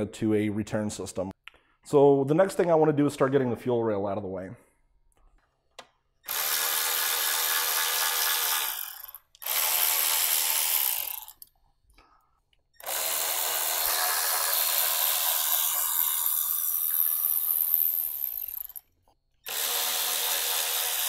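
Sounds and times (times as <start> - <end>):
power driver whirring: 6.2 - 11.5, 12.8 - 18.8, 19.4 - 21.0.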